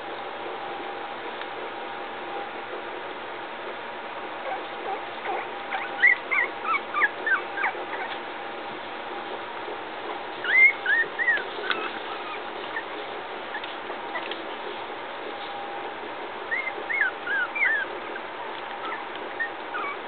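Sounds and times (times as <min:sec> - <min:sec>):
puppies whimpering: 0:04.4 - 0:08.2, 0:10.4 - 0:14.4, 0:16.5 - 0:20.0.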